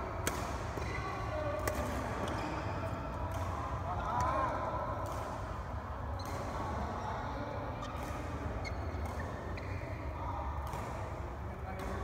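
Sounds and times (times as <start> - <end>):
shoes squeaking on court: 7.8 - 10.0.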